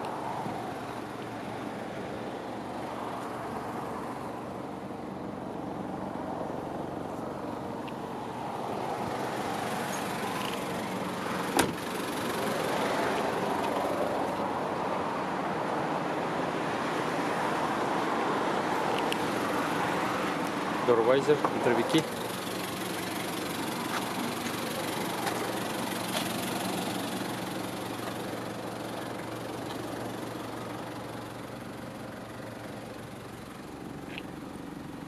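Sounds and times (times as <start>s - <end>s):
motor vehicle running: 18.9s - 35.0s.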